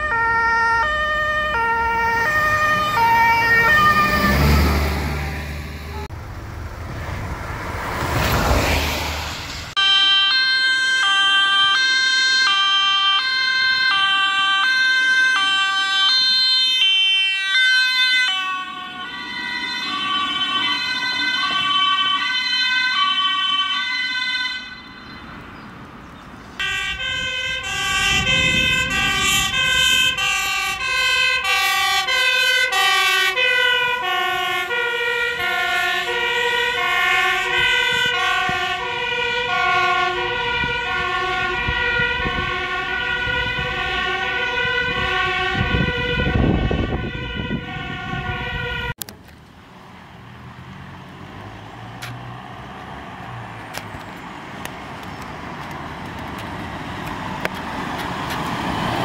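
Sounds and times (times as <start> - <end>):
fast two-tone siren: 0.0 - 6.1, 9.8 - 25.4, 26.6 - 49.0
two-tone emergency sirens: 0.0 - 6.2, 9.7 - 25.5, 26.6 - 49.0
passing road noise: 0.0 - 59.0.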